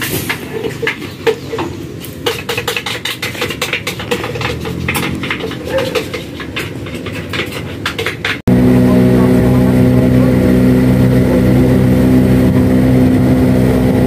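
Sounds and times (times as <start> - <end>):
dishes and utensils clattering: 0.0 - 8.5
steady low rumble: 8.5 - 14.0.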